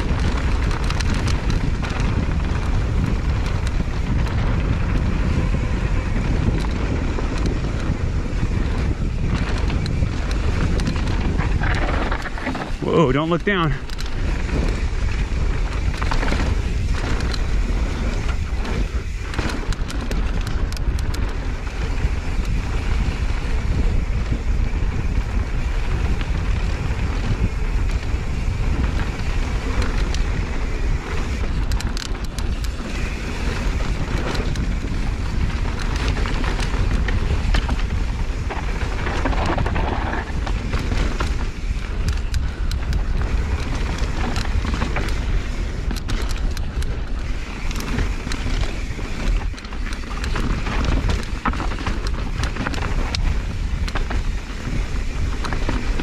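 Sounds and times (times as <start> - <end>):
bike clicks and rattles: 0.0 - 56.0
wind buffeting microphone: 0.0 - 56.0.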